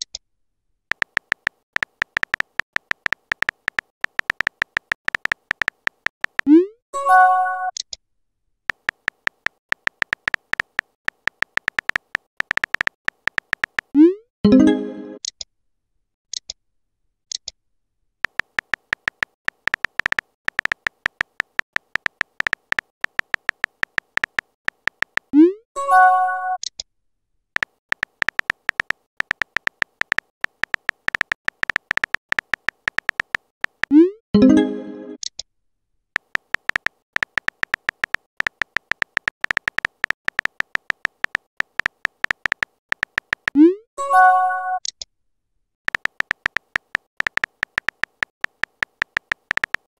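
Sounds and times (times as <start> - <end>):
keyboard typing clicks: 0.9 - 8.0, 8.7 - 15.4, 18.2 - 26.8, 27.6 - 35.4, 36.2 - 45.0, 45.9 - 49.9
message-sent chime: 34.4 - 35.2, 44.0 - 44.8.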